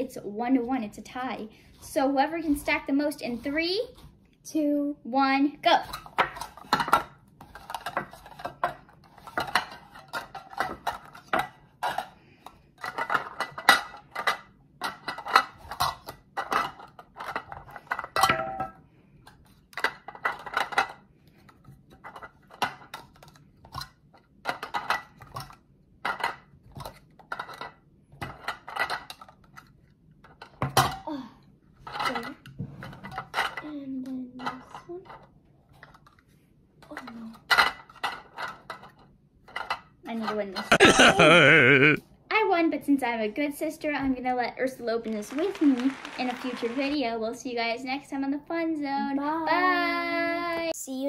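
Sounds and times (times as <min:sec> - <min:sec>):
plastic cups clacking: 0:45.1 - 0:47.1.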